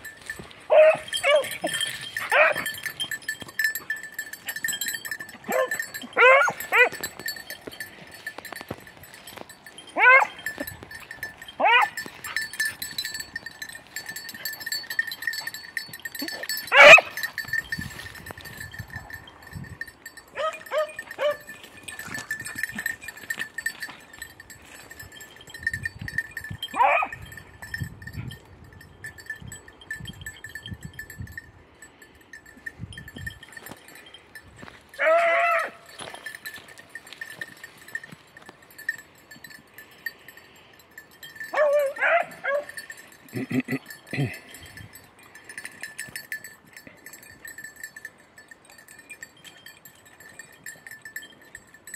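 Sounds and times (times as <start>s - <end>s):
dogs yelping: 0.7s - 7.1s, 9.9s - 10.6s, 11.6s - 12.5s, 16.2s - 17.2s, 20.4s - 21.6s, 35.0s - 35.9s, 41.5s - 42.8s.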